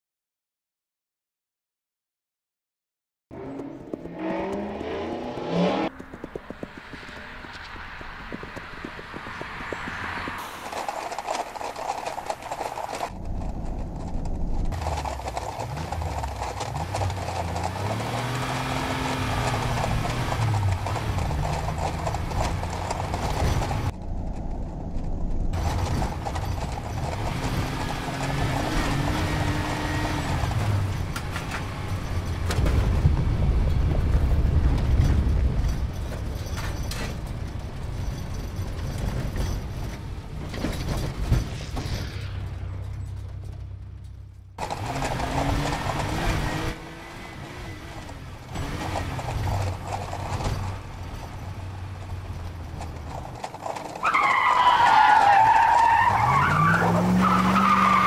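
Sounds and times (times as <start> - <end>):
car engine revving: 3.3 - 11.0, 12.1 - 23.9, 25.6 - 33.0, 41.0 - 58.0
hooves galloping on pavement: 3.5 - 24.0, 24.9 - 41.5, 42.8 - 58.0
low rumble: 13.1 - 16.6.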